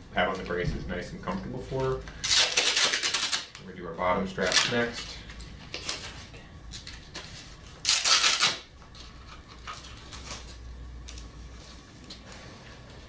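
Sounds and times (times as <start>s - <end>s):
hook-and-loop strap ripping open: 2.2s - 3.6s, 7.8s - 8.7s.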